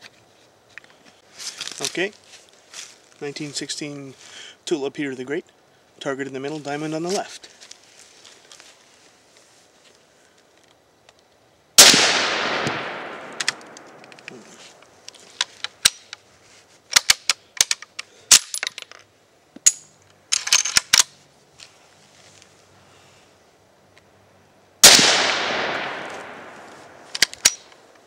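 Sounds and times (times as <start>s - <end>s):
rifle shot with echo: 11.8s - 14.1s, 24.8s - 27.0s.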